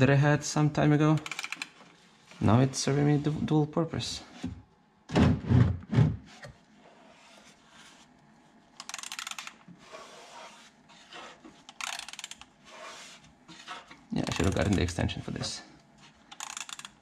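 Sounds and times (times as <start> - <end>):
rapid ratchet clicking: 8.8 - 9.6, 11.7 - 12.5, 16.3 - 17.0.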